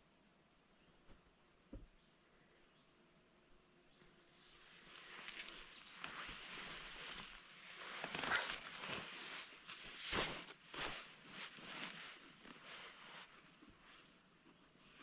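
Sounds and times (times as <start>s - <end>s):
rustling and handling noises: 4.4s - 15.0s.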